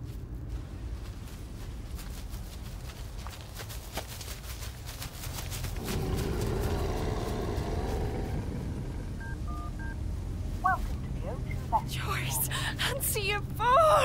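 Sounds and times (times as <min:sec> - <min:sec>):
low rumbling drone: 0:05.6 - 0:14.0
phone keypad beeps: 0:09.2 - 0:10.0.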